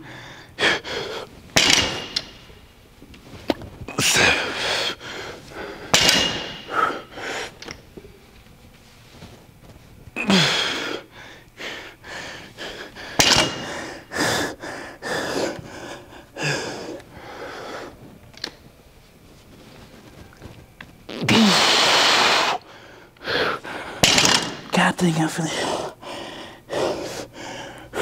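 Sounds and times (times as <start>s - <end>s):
man breathing hard and grunting: 0.0s - 2.4s, 3.9s - 7.6s, 10.2s - 18.0s, 25.5s - 28.0s.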